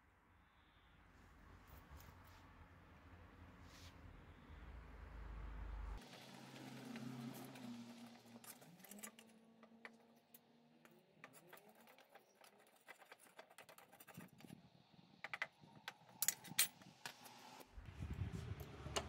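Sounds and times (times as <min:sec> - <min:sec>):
low hum: 0:14.9 - 0:19.0.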